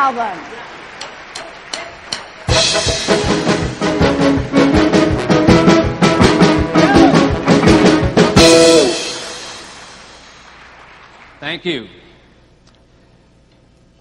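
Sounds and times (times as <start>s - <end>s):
loud music with drums: 2.4s - 10.2s.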